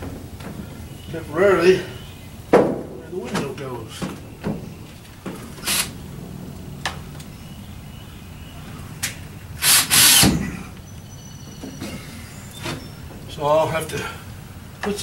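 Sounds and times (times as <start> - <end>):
sharp knocks on wood: 2.5 - 5.4
power tool bursts: 5.5 - 6.0, 9.6 - 10.4.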